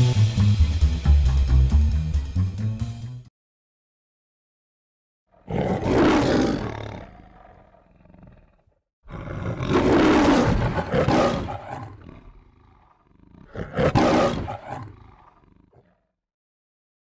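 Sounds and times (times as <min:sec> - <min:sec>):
lion roaring: 0:05.3 - 0:16.1.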